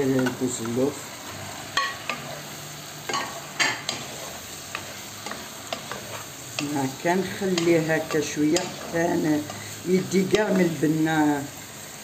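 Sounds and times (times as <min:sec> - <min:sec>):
sauce sizzling in a pan: 0:00.0 - 0:12.0
spatula scraping and knocking pan: 0:01.3 - 0:10.8.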